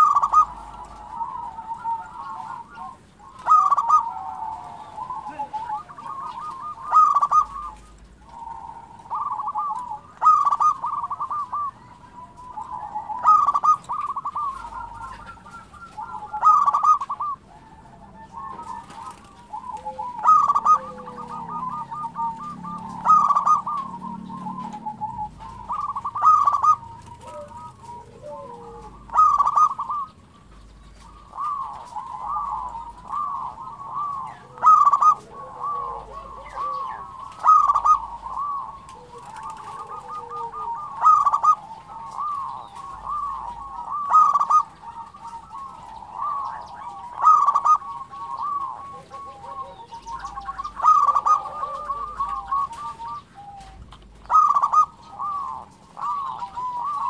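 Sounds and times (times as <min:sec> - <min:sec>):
dove cooing: 0:00.0 - 0:57.0.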